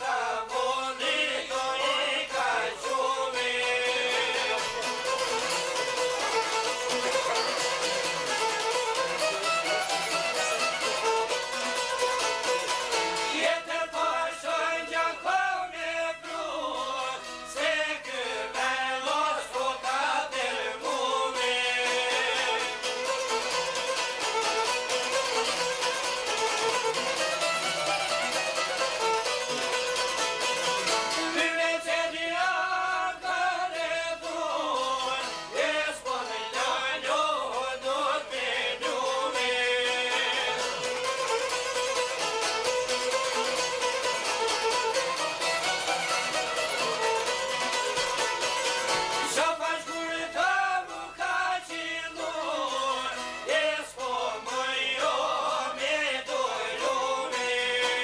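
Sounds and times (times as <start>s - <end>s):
man singing: 0.0s - 5.2s, 13.1s - 22.9s, 31.0s - 41.0s, 49.1s - 58.0s
violin: 0.0s - 13.7s, 16.2s - 51.0s
plucked string instruments: 0.0s - 58.0s.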